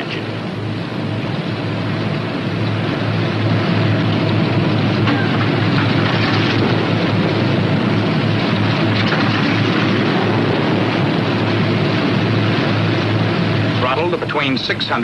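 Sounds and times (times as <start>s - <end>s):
aircraft radial engines droning: 0.0s - 15.0s.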